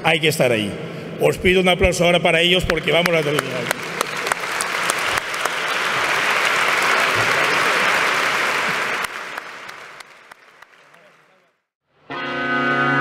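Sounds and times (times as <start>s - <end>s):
large audience applauding: 2.6s - 11.6s.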